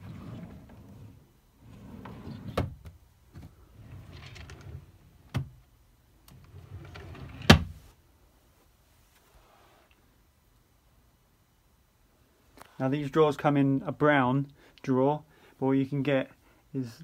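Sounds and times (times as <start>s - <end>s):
wooden drawer sliding: 0.0s - 2.8s, 3.4s - 5.5s, 6.4s - 7.8s
drawer knocking shut: 7.4s - 7.8s.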